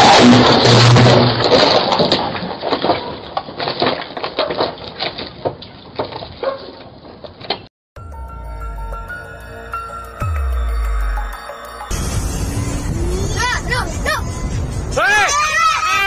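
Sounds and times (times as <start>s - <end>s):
debris cracking and clattering: 0.0s - 6.3s.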